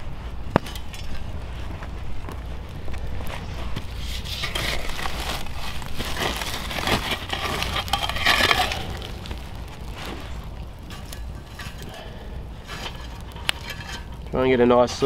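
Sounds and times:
metal shovel scraping embers: 0.1s - 15.0s.

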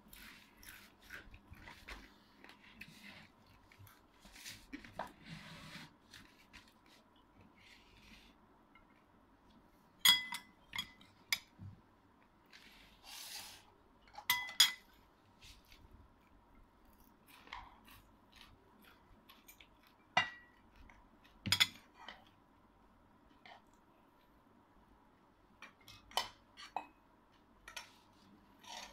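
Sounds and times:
soft rustle: 0.1s - 8.4s
metal spoon clinking on ceramic: 10.0s - 11.0s, 14.2s - 14.8s.

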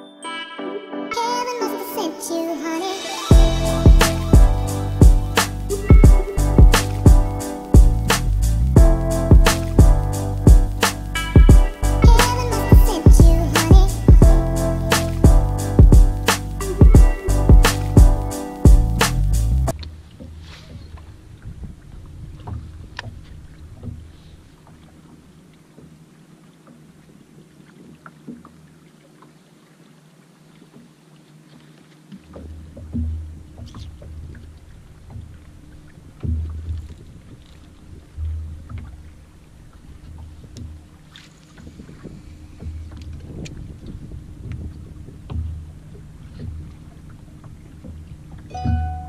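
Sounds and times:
waves slapping boat hull: 2.0s - 49.0s
wind gusting on microphone: 20.7s - 24.0s, 41.8s - 46.4s.

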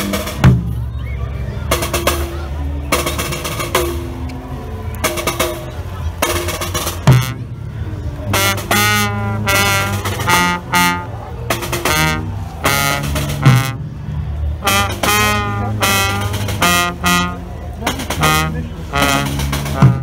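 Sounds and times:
brass band playing: 0.0s - 0.7s, 1.7s - 20.0s.

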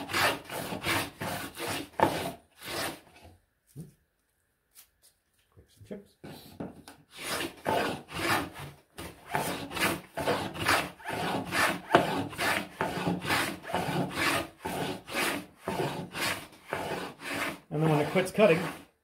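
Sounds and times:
hand plane cutting wood: 0.0s - 3.3s, 7.1s - 18.9s.

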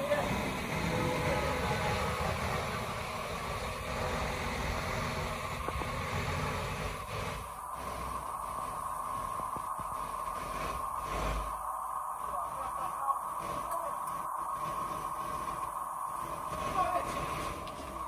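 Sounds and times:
crane engine running: 0.0s - 18.0s.

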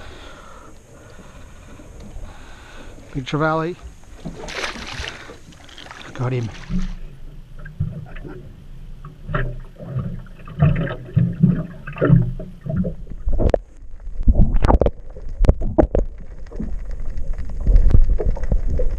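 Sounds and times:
muffled underwater wash: 0.0s - 18.9s
loud splashes: 4.2s - 7.0s.

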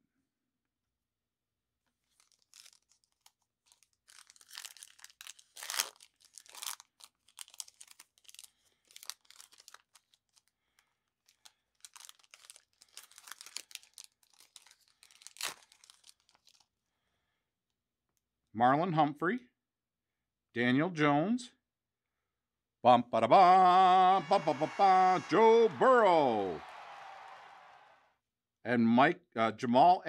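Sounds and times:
foil wrapper crinkling and tearing: 2.0s - 16.7s.

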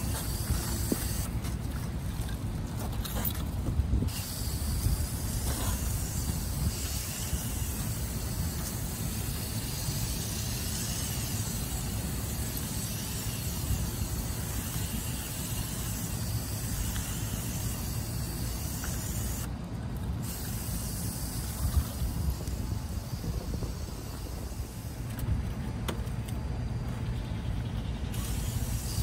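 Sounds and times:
foaming spray gun hissing: 0.0s - 1.4s, 4.1s - 19.5s, 20.2s - 25.1s, 28.1s - 29.0s
steady low rumble: 0.0s - 29.0s.

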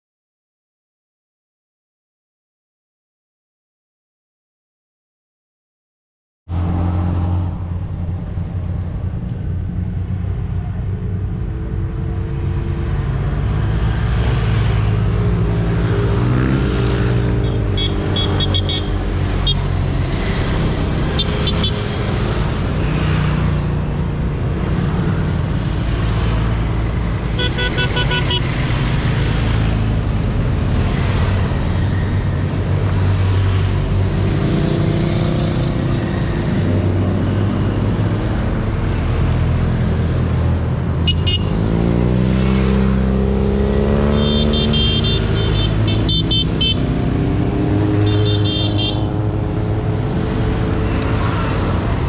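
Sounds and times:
horn beeping: 17.4s - 19.7s, 27.4s - 28.5s, 44.1s - 46.9s
motorcycle engines running: 39.8s - 52.0s.

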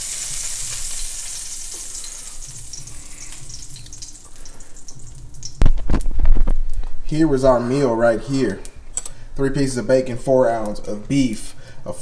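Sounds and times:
bacon sizzling in a pan: 0.0s - 6.0s.

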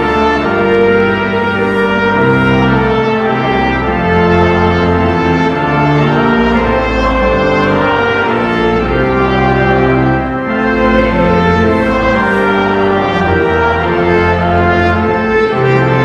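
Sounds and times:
brass or organ accompaniment: 0.0s - 16.0s
choir and congregation singing hymn: 4.5s - 16.0s.

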